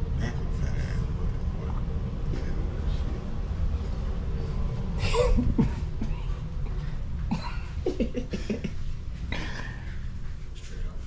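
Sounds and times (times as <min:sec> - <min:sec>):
steady low rumble: 0:00.0 - 0:11.0
person coughing loudly: 0:05.0 - 0:06.2, 0:07.3 - 0:08.7.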